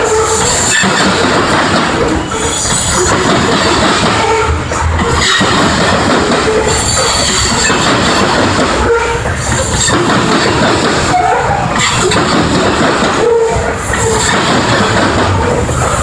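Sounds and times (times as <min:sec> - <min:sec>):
train wheels rumbling on rails: 0:00.0 - 0:16.0
high wheel squeals: 0:02.1 - 0:05.6.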